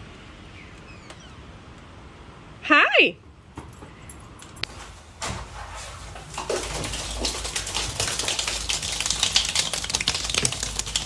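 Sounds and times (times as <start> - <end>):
penguins tapping on wet concrete: 6.3 - 11.0.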